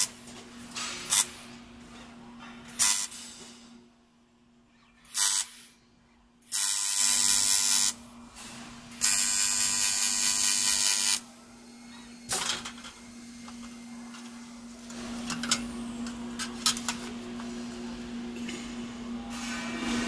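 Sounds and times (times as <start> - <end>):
welding arc hiss and buzz: 0.0 - 1.6, 2.7 - 3.6, 5.1 - 5.8, 6.4 - 11.3
low machine hum: 11.2 - 20.0.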